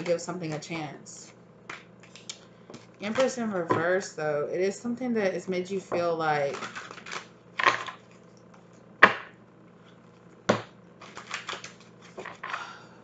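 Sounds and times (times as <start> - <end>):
cards snapping: 10.6 - 12.4
cards clicking while shuffled: 11.0 - 12.6.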